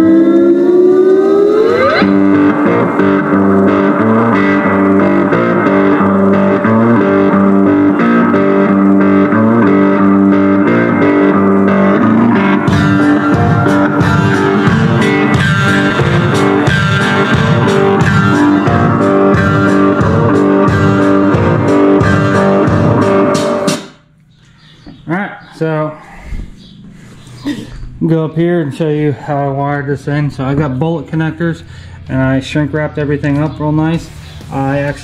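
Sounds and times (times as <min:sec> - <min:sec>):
rising sweep: 0:00.0 - 0:07.2
loud guitar rock music: 0:00.0 - 0:24.1.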